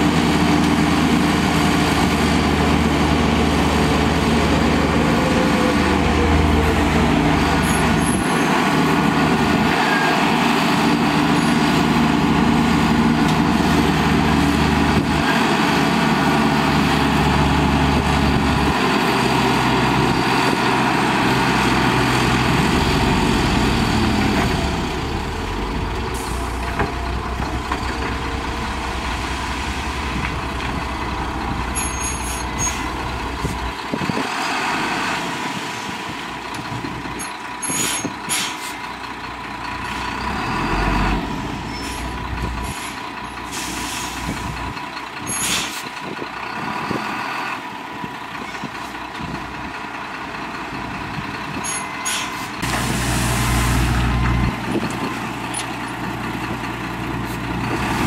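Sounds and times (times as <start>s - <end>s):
diesel truck engines running: 0.0s - 58.0s
air-brake hisses: 42.7s - 44.4s, 45.3s - 45.9s, 52.0s - 53.9s.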